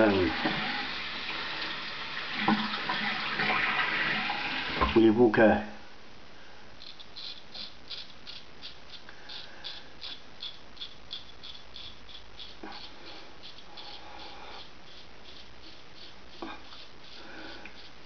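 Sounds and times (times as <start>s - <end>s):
straight razor scraping stubble: 6.8s - 18.0s.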